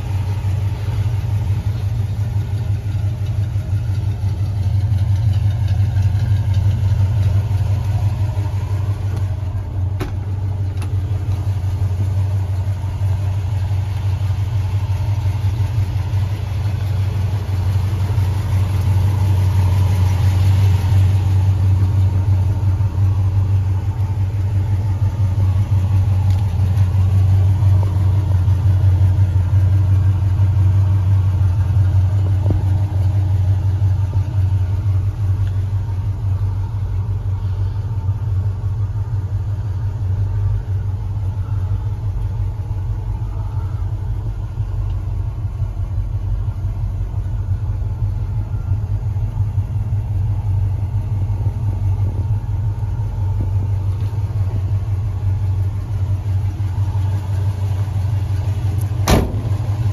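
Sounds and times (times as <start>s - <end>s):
car engine idling: 0.0s - 59.9s.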